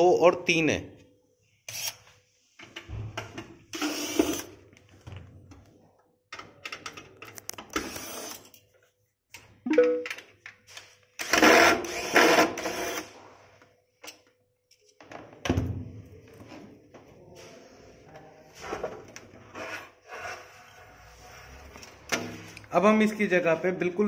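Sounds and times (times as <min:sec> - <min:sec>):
electric screwdriver whirring: 0:03.8 - 0:04.5, 0:07.7 - 0:08.4, 0:11.2 - 0:13.1.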